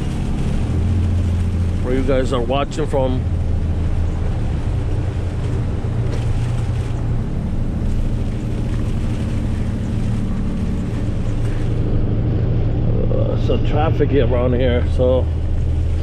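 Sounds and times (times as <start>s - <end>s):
tyres hissing on wet road: 0.0s - 12.2s
truck engine hum: 0.0s - 16.0s.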